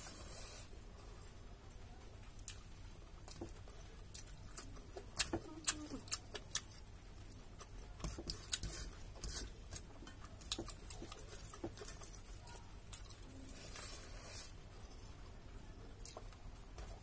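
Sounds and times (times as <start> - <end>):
fingers mixing rice on steel plate: 3.2 - 14.6.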